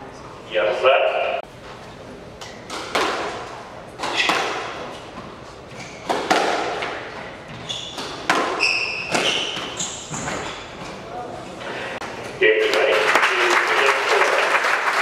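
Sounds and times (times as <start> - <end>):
shoes squeaking on court floor: 1.6 - 11.6
squash ball hitting rackets and walls: 2.4 - 11.0.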